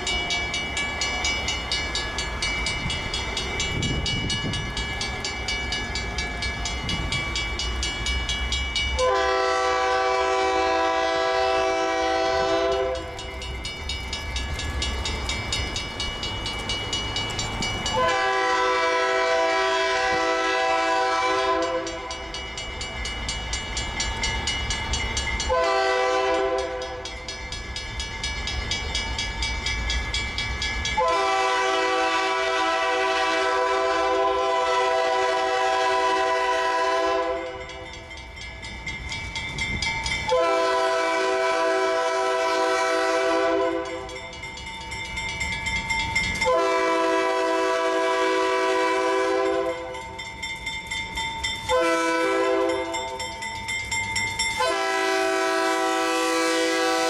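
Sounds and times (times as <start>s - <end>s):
locomotive air horn blasts: 9.0s - 13.2s, 18.0s - 22.1s, 25.5s - 26.9s, 31.0s - 37.6s, 40.3s - 44.0s, 46.4s - 49.9s, 51.7s - 52.9s, 54.6s - 57.0s.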